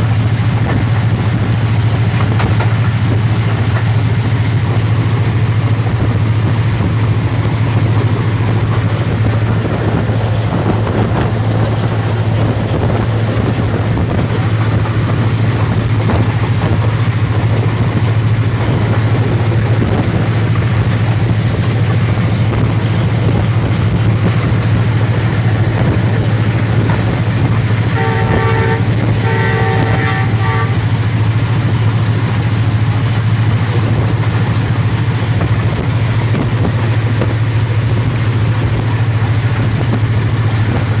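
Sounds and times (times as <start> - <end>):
diesel locomotive engine drone: 0.0 - 41.0
train horn blasts: 27.8 - 31.2.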